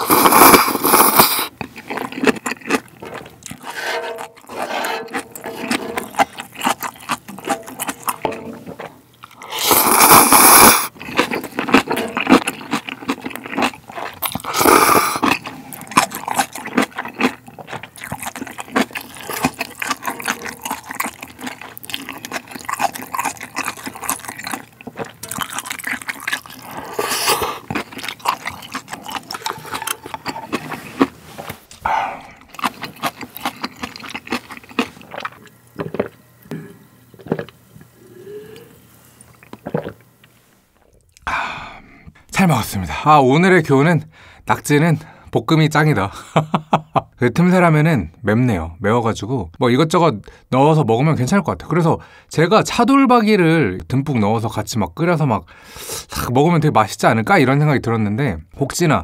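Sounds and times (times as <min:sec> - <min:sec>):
loud slurps: 0:00.0 - 0:01.6, 0:03.5 - 0:06.6, 0:09.4 - 0:10.9, 0:26.6 - 0:27.8
wet chewing and mouth clicks: 0:00.0 - 0:36.5, 0:39.2 - 0:41.3.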